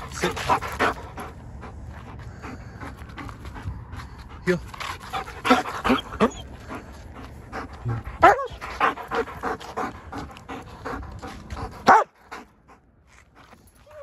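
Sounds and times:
dog panting: 0:00.0 - 0:14.0
dog whine: 0:05.3 - 0:06.6.

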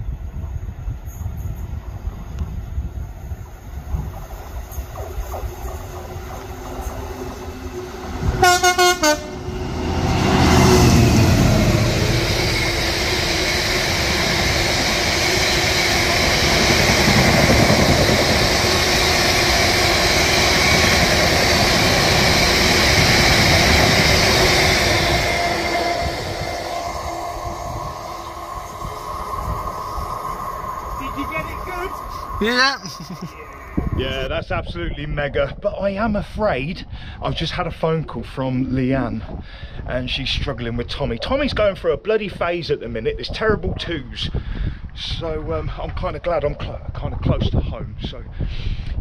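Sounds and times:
train passing at speed: 0:00.0 - 0:34.5
train horn blast: 0:07.8 - 0:12.2.

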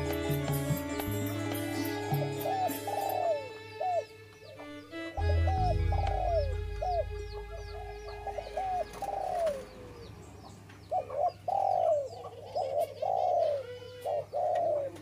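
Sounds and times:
dove cooing: 0:02.1 - 0:04.1, 0:05.2 - 0:10.2, 0:10.9 - 0:15.0.

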